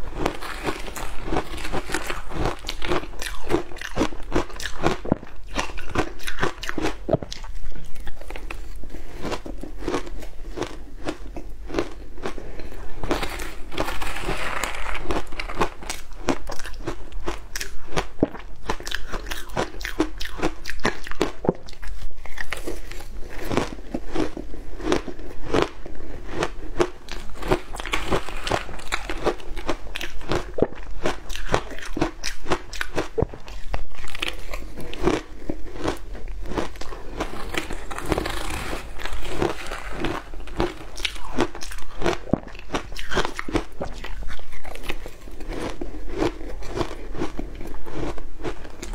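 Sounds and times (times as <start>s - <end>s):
chewing crunchy ice: 0.0s - 48.9s.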